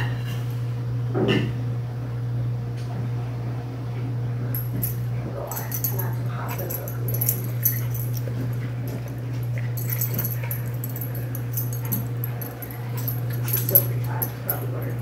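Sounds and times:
steady low hum: 4.2s - 15.0s.

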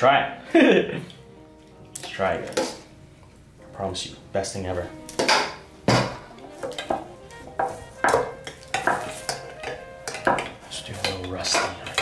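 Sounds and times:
metal pots set down on wood: 5.2s - 7.0s
spoon clinking against metal bowl: 7.6s - 12.0s.

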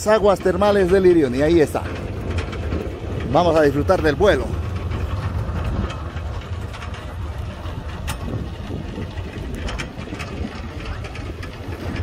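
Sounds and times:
ride rumbling along steel cable: 0.0s - 12.0s
trolley clicks and rattles: 0.0s - 12.0s.

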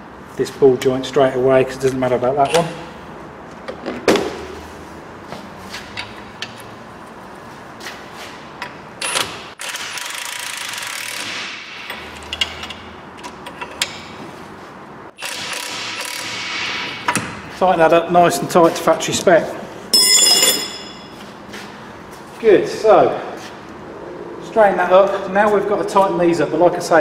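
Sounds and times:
air impact wrench: 9.1s - 12.1s, 15.2s - 17.2s
metal spanners clinking: 20.0s - 21.2s.

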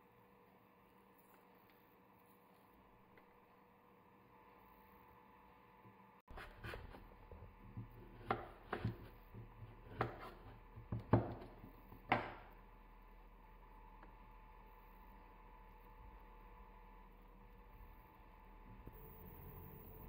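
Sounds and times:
knife knocking on wooden board: 7.8s - 9.1s, 9.8s - 12.4s.

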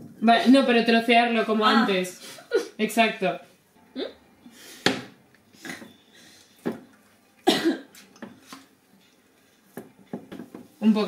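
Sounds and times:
person coughing: 7.4s - 7.9s.

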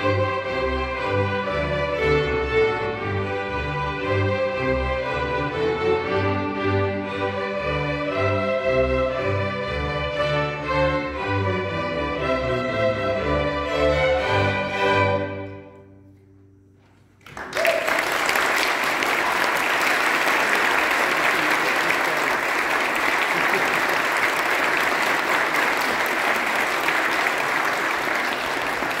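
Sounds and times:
audience applause: 17.2s - 29.0s.

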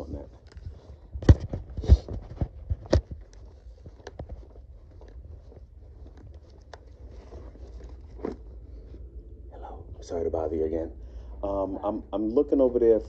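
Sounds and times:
footsteps: 0.0s - 9.2s
low steady rumble: 0.0s - 13.0s.

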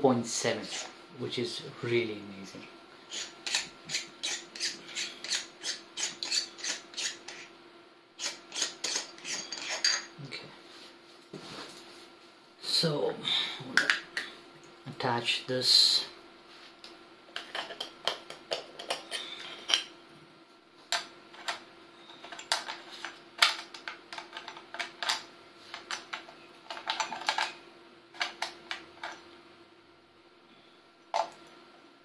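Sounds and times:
camera parts clicking and clattering: 25.8s - 27.6s.

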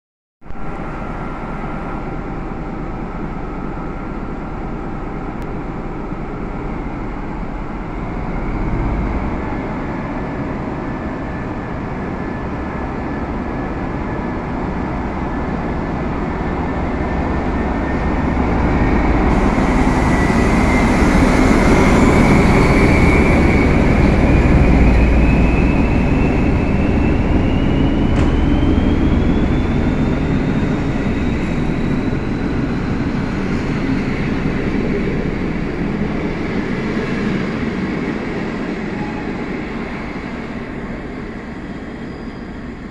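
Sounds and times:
diesel locomotive engine under load: 0.7s - 42.9s
train carriages rumbling past: 5.6s - 42.9s
whine rising in pitch: 7.7s - 10.6s, 17.3s - 35.5s.

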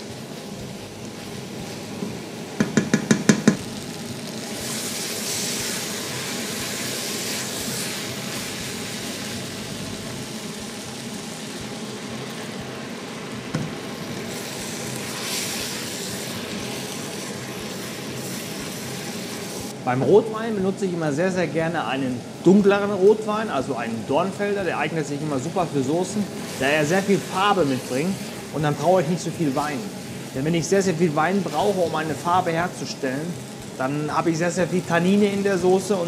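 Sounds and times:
vegetables sizzling in pot: 0.0s - 36.0s
wooden spoon knocking on pot: 2.6s - 3.6s.

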